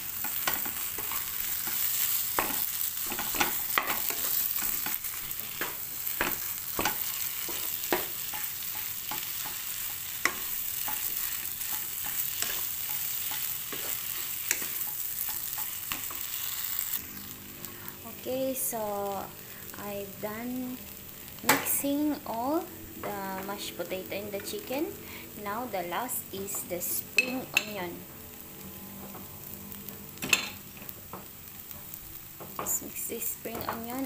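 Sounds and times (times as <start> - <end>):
frying hiss: 0.0 - 34.0
spatula scraping a wok: 0.1 - 17.9.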